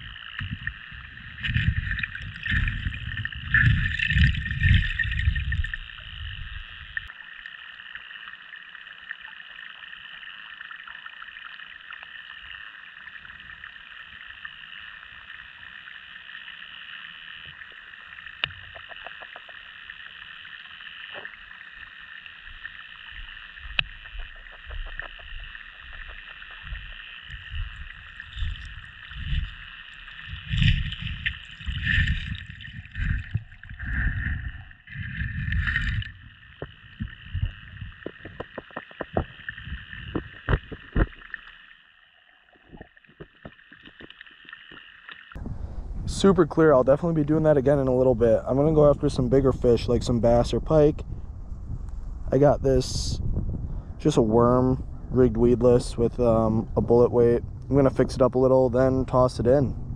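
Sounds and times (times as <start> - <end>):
muffled underwater hiss: 0.0 - 41.8
water sloshing and gurgling: 0.0 - 52.3
faint clicks: 22.6 - 29.5.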